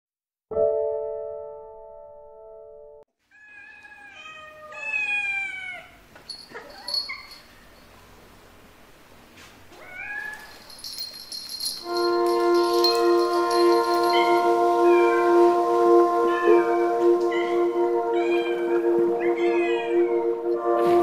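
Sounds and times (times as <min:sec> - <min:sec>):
cat meowing: 0:03.3 - 0:06.0
held musical note: 0:10.8 - 0:21.0.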